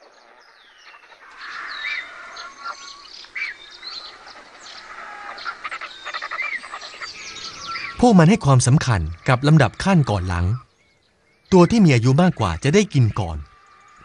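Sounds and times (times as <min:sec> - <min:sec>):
birds chirping and whistling: 0:00.0 - 0:14.0
bird chattering: 0:00.8 - 0:10.7.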